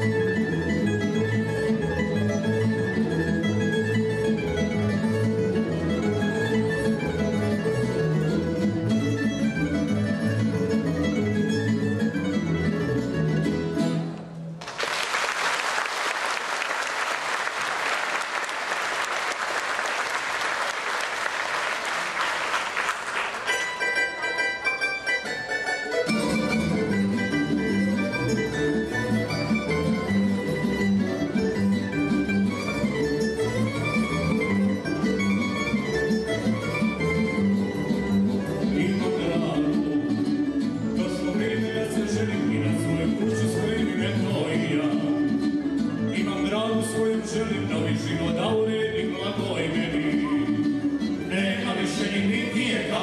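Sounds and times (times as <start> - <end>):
double bass: 0.0 - 14.2, 23.5 - 53.0
audience applause: 14.6 - 23.5
plucked tamburicas: 23.0 - 39.6.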